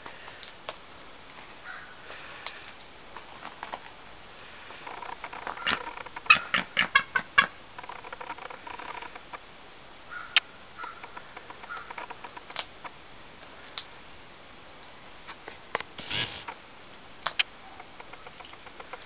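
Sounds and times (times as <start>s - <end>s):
scattered ticks: 7.8s - 9.4s, 11.0s - 13.0s, 17.3s - 19.0s.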